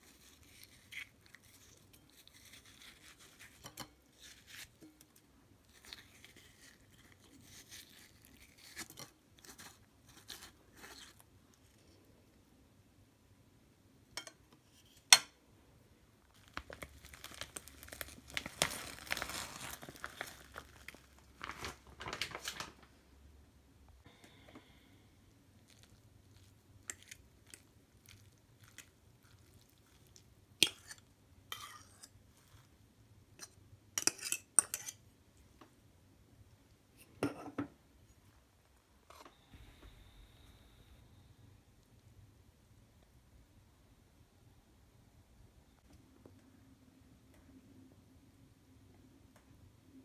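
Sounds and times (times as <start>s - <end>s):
spoon scraping glass bowl: 30.6s - 32.2s.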